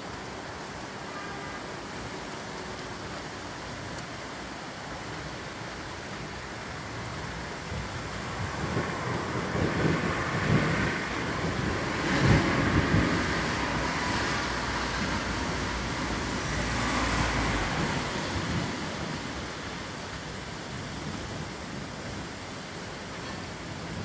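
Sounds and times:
steady rain: 0.0s - 24.0s
rolling thunder: 7.7s - 20.2s.

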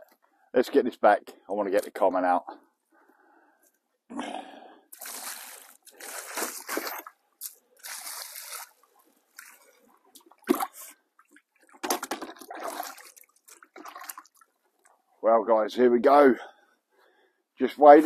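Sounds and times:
water splashing from bucket: 4.9s - 14.6s.

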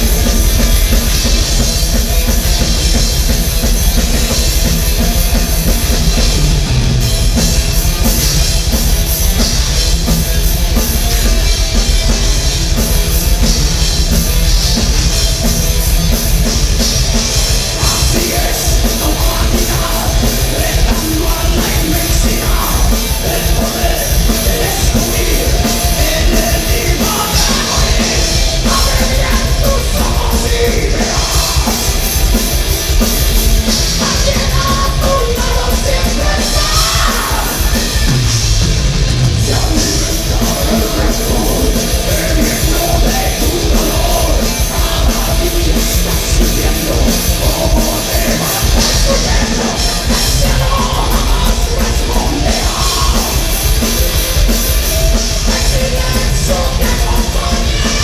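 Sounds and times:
bass guitar: 0.0s - 58.0s
distorted electric guitar: 0.0s - 58.0s
drum kit: 0.0s - 58.0s
person shouting and singing: 34.0s - 38.1s.

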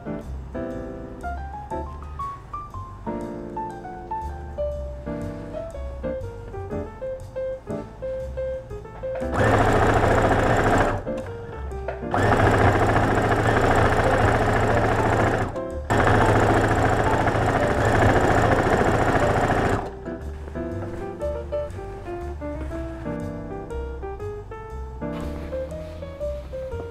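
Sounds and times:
sewing machine stitching: 9.2s - 11.2s, 12.1s - 19.9s.

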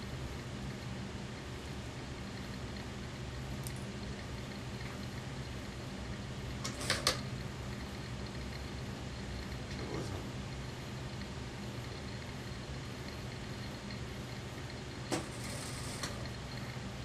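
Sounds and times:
sewing machine motor hum: 11.9s - 17.0s.

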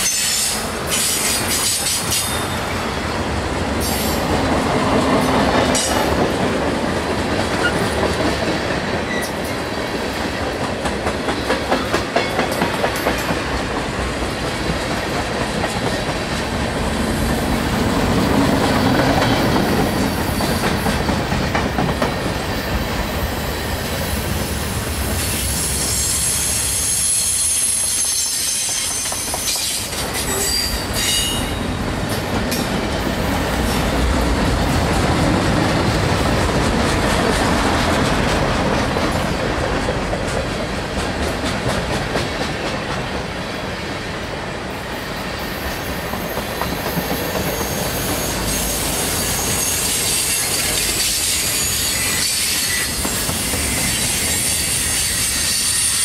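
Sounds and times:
train wheels rumbling on rail: 0.0s - 56.0s.

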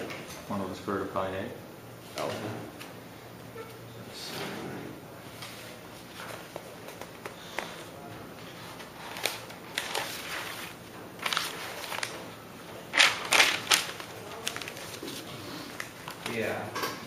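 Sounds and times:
paper rustling and crackling: 8.4s - 16.6s.

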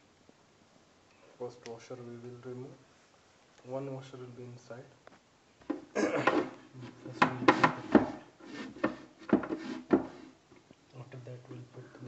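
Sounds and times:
sharp knocks: 7.1s - 8.2s
short scrape: 7.5s - 10.4s.

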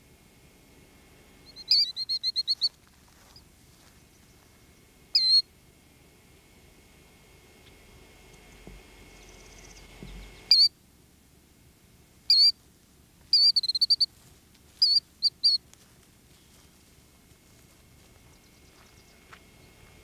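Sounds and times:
killdeer calling: 1.4s - 5.5s, 8.5s - 10.8s, 12.3s - 12.6s, 13.3s - 14.1s, 14.8s - 15.6s.

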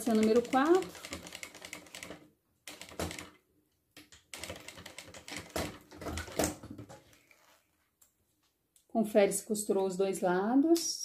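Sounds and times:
sewing machine clattering: 0.0s - 3.4s, 4.3s - 7.0s.

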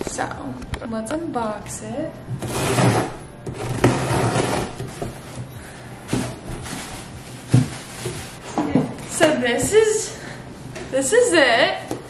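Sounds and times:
cardboard tearing and scraping: 2.4s - 5.2s
cardboard knocks: 7.5s - 8.2s.

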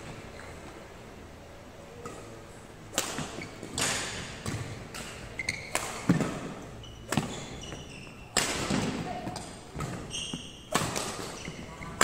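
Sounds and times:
racket striking shuttlecock: 2.9s - 7.6s, 8.3s - 11.4s
shoe squeak: 3.4s - 3.9s, 5.3s - 8.4s, 9.9s - 12.0s.

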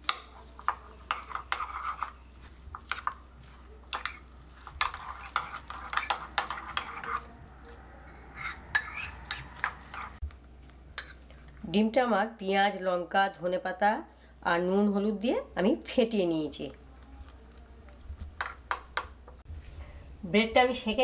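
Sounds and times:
metal spoon beating eggs in mug: 0.0s - 7.4s, 8.3s - 10.2s.

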